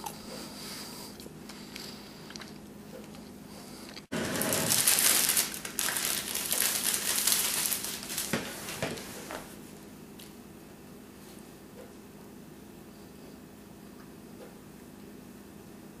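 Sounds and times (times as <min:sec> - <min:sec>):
plastic wrapper crinkling: 0:04.2 - 0:09.0.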